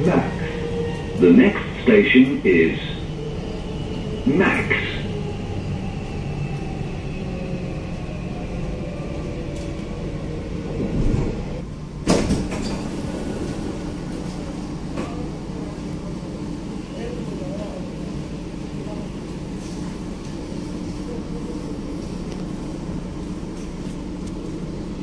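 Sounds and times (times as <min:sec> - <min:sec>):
train low rumble: 0:00.0 - 0:25.0
train clunk: 0:12.0 - 0:14.2.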